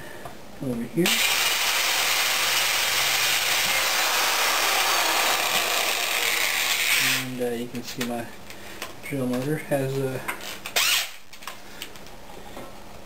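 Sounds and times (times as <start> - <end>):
electric drill boring into pipe: 1.1 - 7.2, 10.8 - 11.2.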